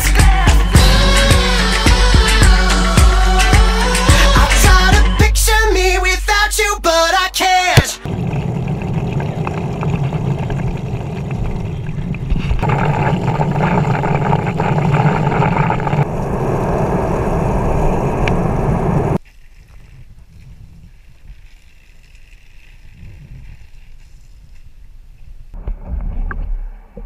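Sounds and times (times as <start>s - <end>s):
wind and water rushing over microphone: 8.0s - 21.4s.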